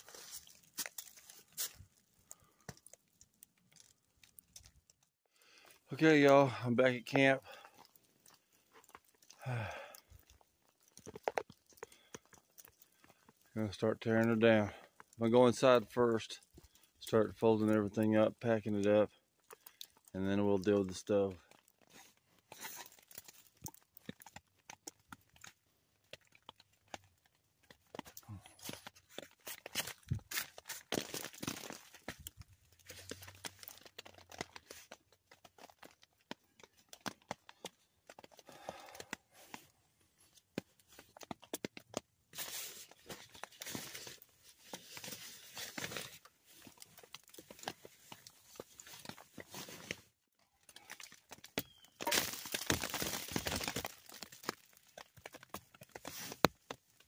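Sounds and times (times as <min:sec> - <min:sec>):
fabric rustling and crinkling: 0:39.3 - 0:57.0.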